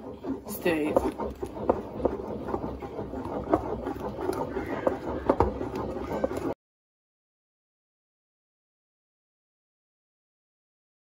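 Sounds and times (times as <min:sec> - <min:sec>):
wet stirring of paste: 0:00.0 - 0:06.6
wooden pestle knocking in mortar: 0:00.0 - 0:06.6.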